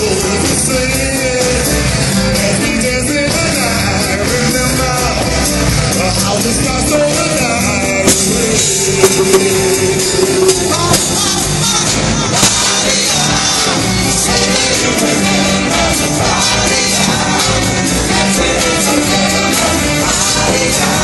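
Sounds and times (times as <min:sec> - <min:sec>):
rock band with violins: 0:00.0 - 0:21.0
sharp drum hits: 0:08.0 - 0:11.8.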